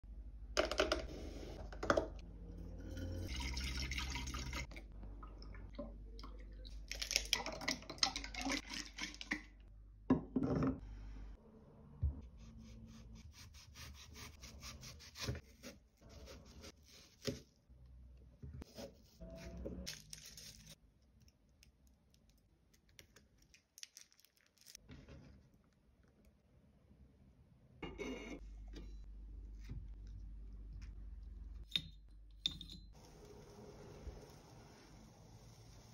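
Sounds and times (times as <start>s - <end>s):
milk pouring into glass: 3.3s - 5.3s.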